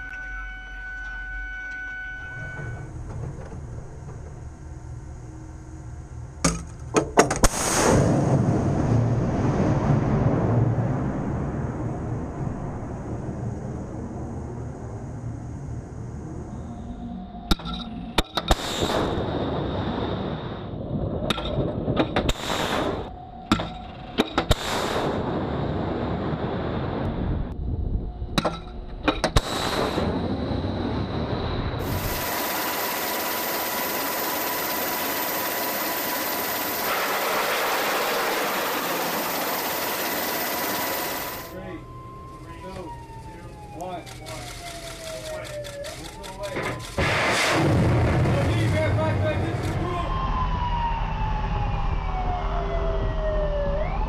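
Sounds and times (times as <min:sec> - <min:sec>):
hum with high whistle: 0:00.0 - 0:03.1, 0:13.9 - 0:20.8
sharp blasts: 0:07.4 - 0:09.1, 0:24.4 - 0:25.7, 0:31.8 - 0:41.5, 0:46.8 - 0:49.6
rocket rushing: 0:07.4 - 0:11.3, 0:24.5 - 0:27.0, 0:29.4 - 0:30.4, 0:47.0 - 0:49.6
missile launch crack: 0:07.4 - 0:13.2, 0:24.5 - 0:27.2, 0:47.0 - 0:49.9.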